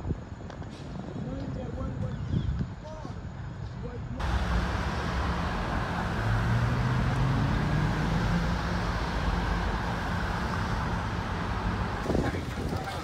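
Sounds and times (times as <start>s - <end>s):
street traffic noise: 0.0s - 13.0s
vehicle driving past: 4.2s - 13.0s.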